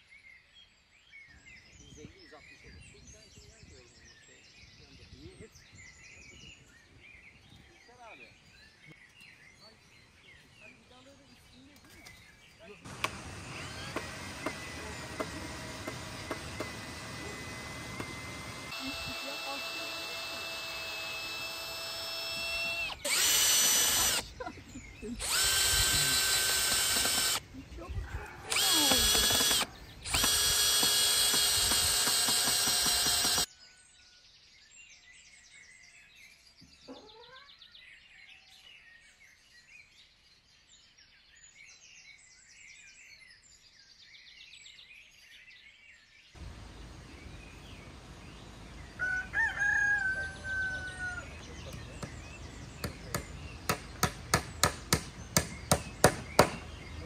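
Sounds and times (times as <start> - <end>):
power drill running: 12.9 - 24.3, 25.2 - 27.4, 28.5 - 33.5
faint bird chirps: 33.1 - 40.2
rooster crowing: 49.0 - 51.5.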